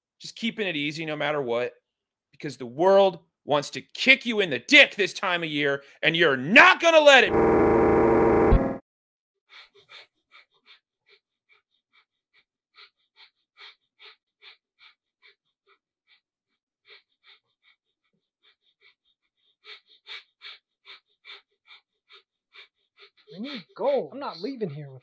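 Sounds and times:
loud electronic buzz: 7.2s - 8.8s.

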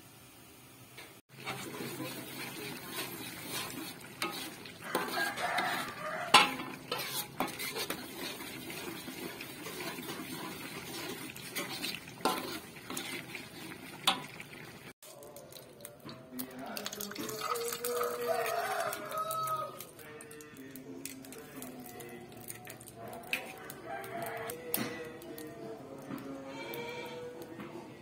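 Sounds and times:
metal spatula scraping a wok: 1.3s - 14.8s.

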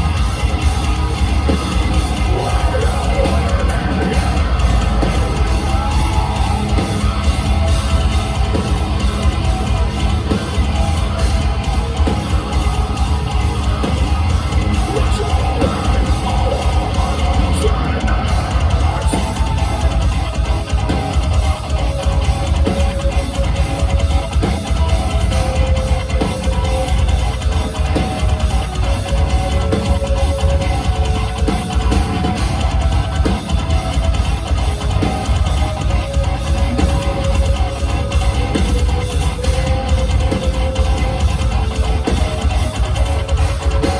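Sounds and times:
drum kit: 0.0s - 43.9s
heavy distorted guitars: 0.0s - 43.9s
live metal band playing: 0.0s - 43.9s.

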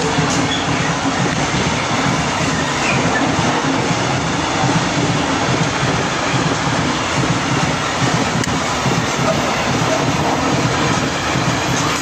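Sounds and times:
freight train rumbling past: 0.0s - 12.0s.

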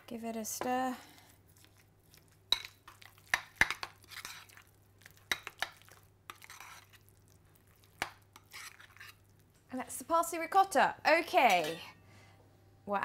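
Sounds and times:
scraping and squishing of cheese: 1.0s - 9.6s
spoon clinking against bowl: 11.4s - 12.0s.

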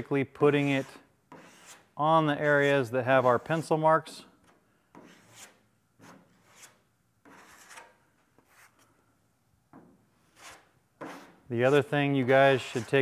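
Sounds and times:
spreader scraping filler: 10.2s - 13.0s.

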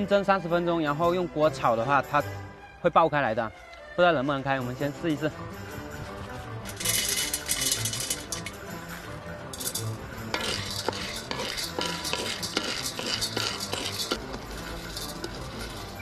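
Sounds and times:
nut shells rattling in a pan: 6.7s - 8.8s, 9.5s - 16.0s.

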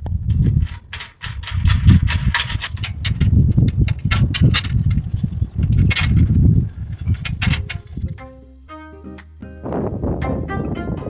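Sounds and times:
wind rumbling on microphone: 0.0s - 8.3s, 9.6s - 11.0s
metal rails clicking: 0.0s - 8.4s.

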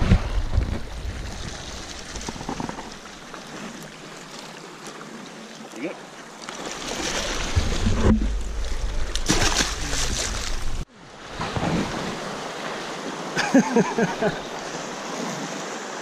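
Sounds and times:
wind rumble on microphone: 0.0s - 2.8s
surf washing over rocks: 6.6s - 16.0s.

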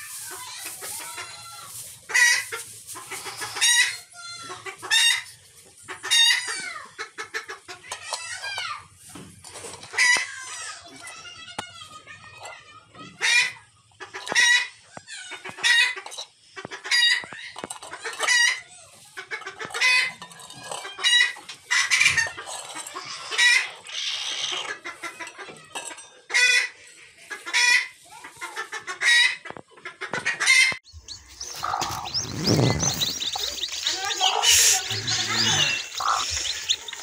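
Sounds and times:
rustling: 0.0s - 4.0s, 30.9s - 37.0s
hen clucking: 0.0s - 8.0s, 27.3s - 37.0s.

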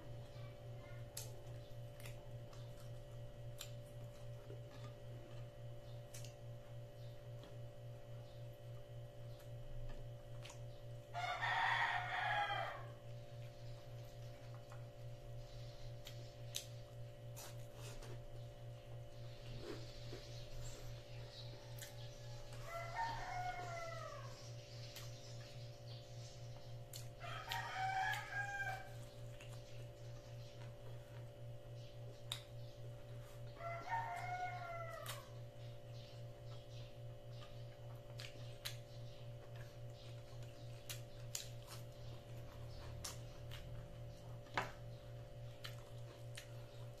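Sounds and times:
steady low hum: 0.0s - 47.0s
chewing clicks: 1.0s - 7.6s, 8.6s - 10.9s, 15.8s - 17.8s, 21.7s - 22.7s, 24.8s - 25.6s, 26.5s - 28.4s, 29.0s - 31.4s, 32.0s - 33.2s, 36.1s - 47.0s
rooster crowing: 11.1s - 13.0s, 21.2s - 24.4s, 27.2s - 29.0s, 33.6s - 35.4s.

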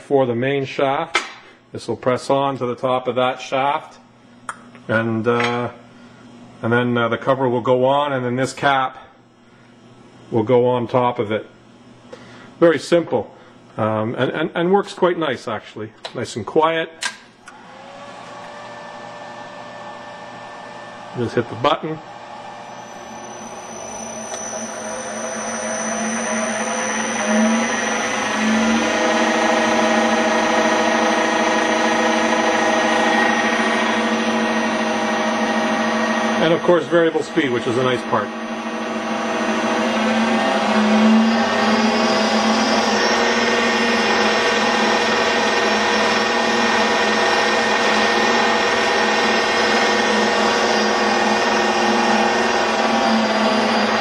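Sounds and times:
milling machine motor whine: 17.5s - 54.0s.

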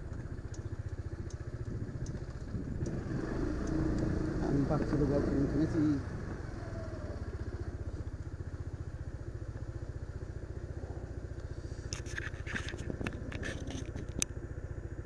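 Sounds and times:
sharp clicks and rattles: 0.0s - 5.9s, 11.3s - 14.4s
motorbike engine idling: 0.0s - 15.0s.

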